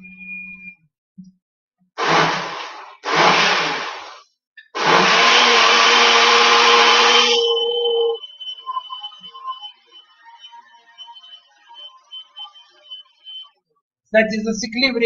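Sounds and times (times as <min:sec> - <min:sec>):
blender motor blending: 0:02.0 - 0:08.2.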